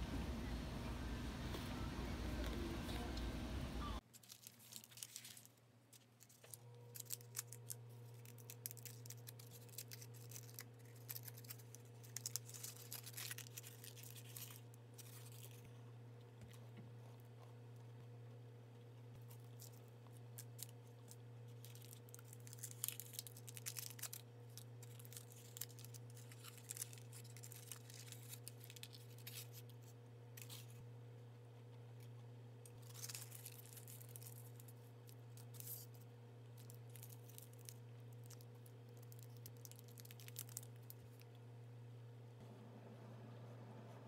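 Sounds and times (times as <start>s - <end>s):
steady low hum: 0.0s - 4.0s, 5.7s - 44.0s
foil wrappers crinkling: 4.0s - 15.6s, 19.2s - 30.8s, 32.0s - 41.3s.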